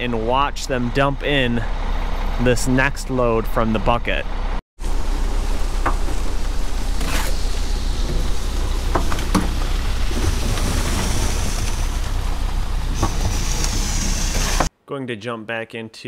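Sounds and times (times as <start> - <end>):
truck engine rumble: 0.0 - 14.7
wet concrete sliding down chute: 5.2 - 14.7.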